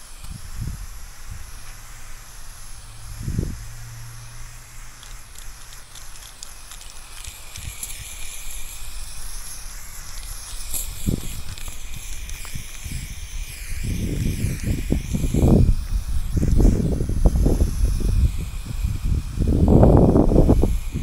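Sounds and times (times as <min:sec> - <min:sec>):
spray paint can hissing: 0:00.0 - 0:21.0
low rumble: 0:00.4 - 0:06.7.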